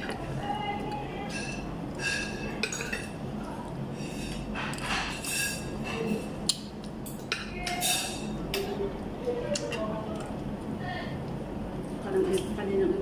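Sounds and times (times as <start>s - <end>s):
cutlery clinking on a plate: 1.3s - 3.2s, 4.3s - 6.2s, 7.0s - 8.8s.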